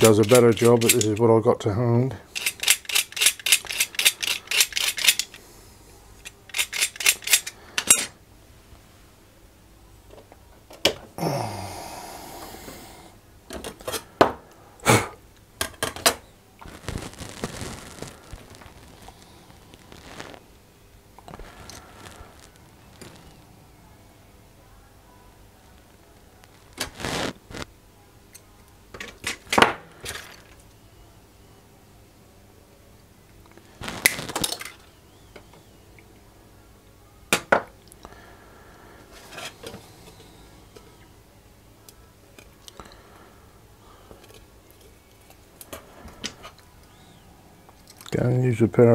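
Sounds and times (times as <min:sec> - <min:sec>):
metal tools clinking: 0:00.0 - 0:01.2.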